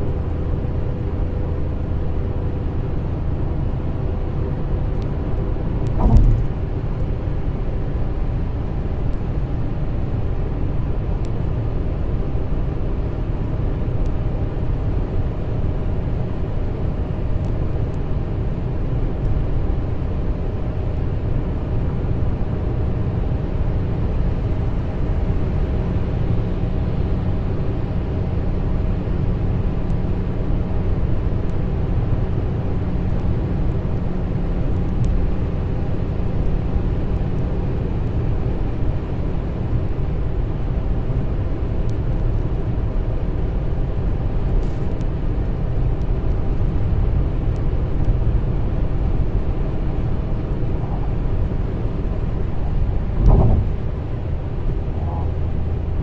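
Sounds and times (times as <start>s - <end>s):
car road and engine noise: 0.0s - 56.0s
short thump: 5.9s - 6.9s, 53.1s - 54.1s.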